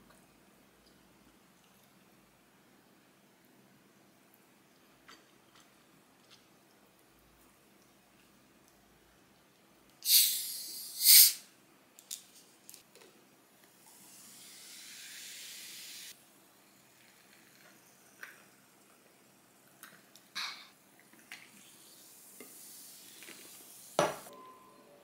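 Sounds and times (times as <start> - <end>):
soda fizzing: 10.0 - 11.4, 13.8 - 20.1, 21.0 - 24.3
carbonation hissing from bottle: 10.0 - 11.5, 13.8 - 16.2, 21.3 - 24.3.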